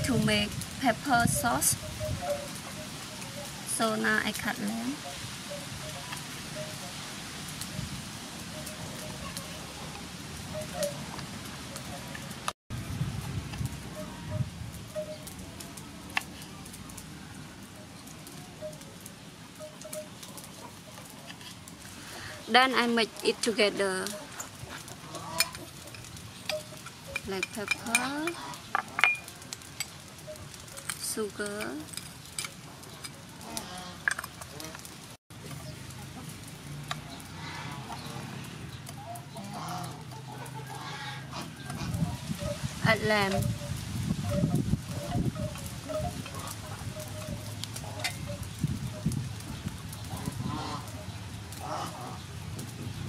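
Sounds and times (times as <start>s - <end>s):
chickens clucking: 1.2s - 3.6s, 8.5s - 12.3s, 18.0s - 30.9s, 37.0s - 52.2s.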